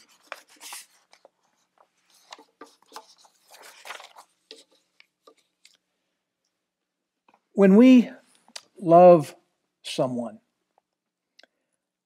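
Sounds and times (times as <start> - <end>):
paper notes rustling: 0.0 - 5.8.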